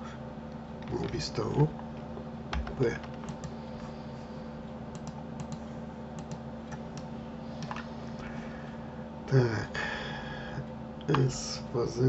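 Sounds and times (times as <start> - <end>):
steady low hum: 0.0 - 12.0
computer keyboard and mouse clicks: 2.5 - 3.6, 4.9 - 5.6, 6.2 - 7.8.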